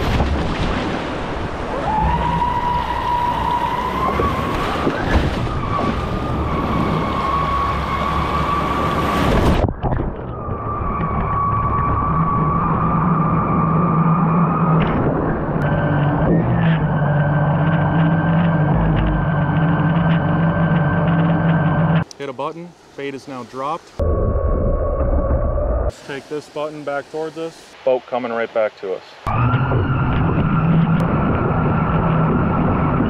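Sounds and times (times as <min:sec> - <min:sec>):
surf and water rushing: 0:00.0 - 0:24.0, 0:25.9 - 0:33.0
electric motor whining: 0:15.6 - 0:22.0
hiss of water and wind: 0:22.0 - 0:24.0, 0:25.9 - 0:29.3.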